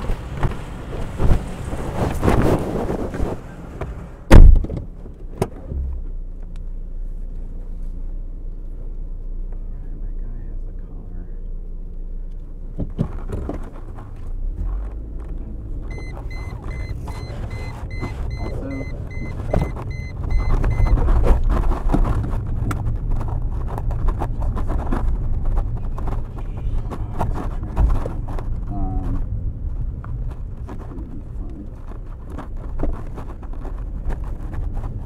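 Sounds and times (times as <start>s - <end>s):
car engine from inside cabin: 0.0s - 35.0s
dashboard warning chime beeping: 15.9s - 21.1s.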